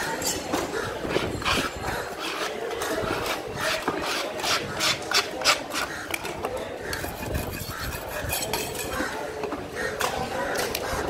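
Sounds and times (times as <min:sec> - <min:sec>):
knife scraping fish scales: 0:01.1 - 0:05.9, 0:07.0 - 0:09.0.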